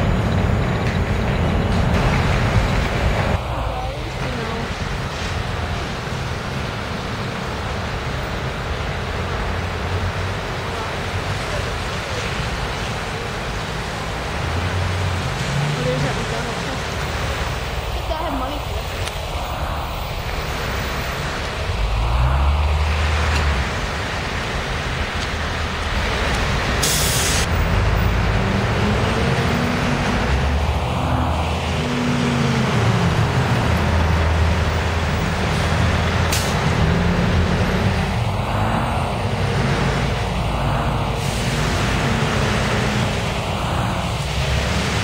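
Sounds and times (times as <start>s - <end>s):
bus engines: 0.0s - 45.0s
street traffic passing: 0.0s - 45.0s
air brakes hiss: 26.8s - 27.5s.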